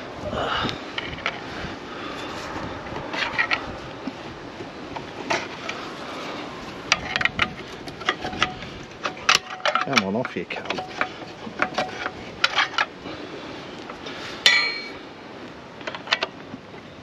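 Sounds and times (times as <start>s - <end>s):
wind on microphone: 0.0s - 9.0s
pry bar clanking on metal: 6.9s - 12.8s, 14.4s - 15.0s.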